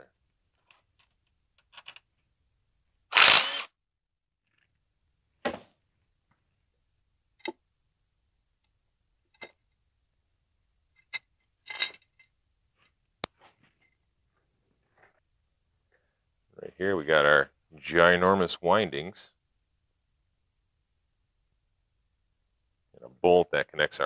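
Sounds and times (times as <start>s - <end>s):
impact driver burst: 3.1s - 3.7s
metal clinks and clanks: 11.0s - 12.3s.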